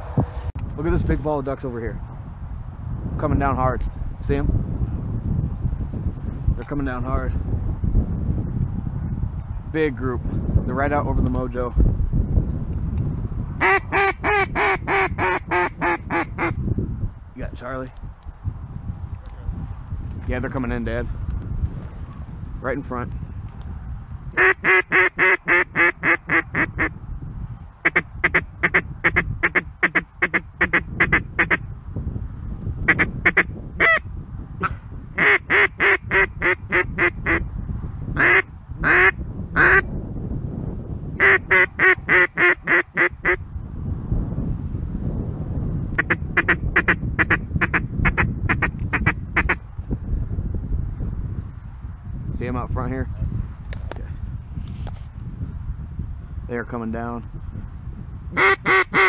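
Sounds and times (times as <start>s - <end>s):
wind rumbling: 0.0s - 59.0s
duck call quacks: 13.6s - 16.6s, 24.4s - 26.9s, 27.8s - 31.6s, 32.9s - 34.0s, 35.2s - 37.4s, 38.2s - 39.8s, 41.2s - 43.4s, 46.0s - 49.6s, 58.4s - 59.0s.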